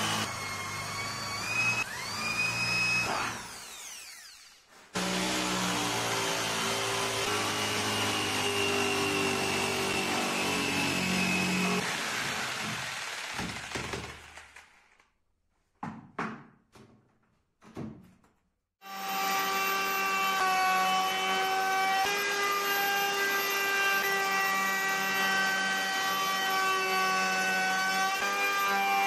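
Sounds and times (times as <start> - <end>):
jigsaw cutting wood: 0.0 - 15.0, 18.8 - 29.0.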